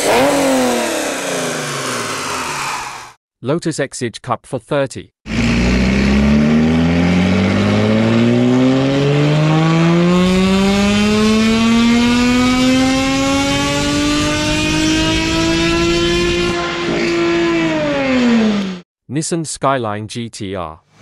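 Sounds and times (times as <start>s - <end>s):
car engine revving on a dyno: 0.0s - 3.2s, 5.3s - 18.8s.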